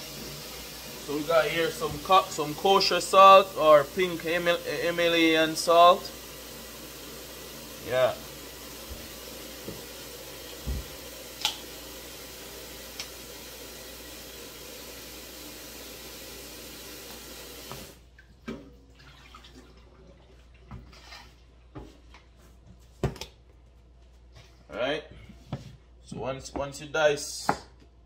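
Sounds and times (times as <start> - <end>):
tap water filling a metal bowl: 0.0 - 20.8.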